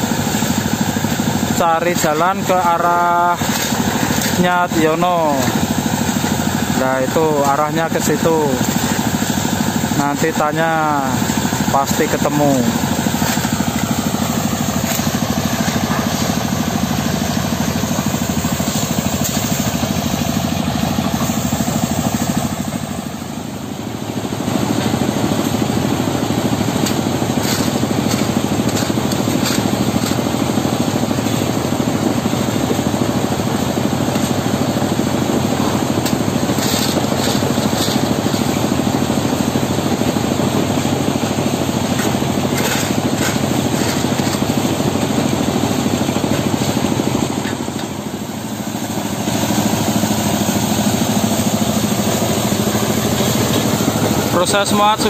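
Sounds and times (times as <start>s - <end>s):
stone-crushing machinery running: 0.0s - 55.0s
shovels scraping crushed stone: 3.4s - 4.5s, 26.8s - 30.3s, 36.5s - 38.6s, 42.0s - 44.6s.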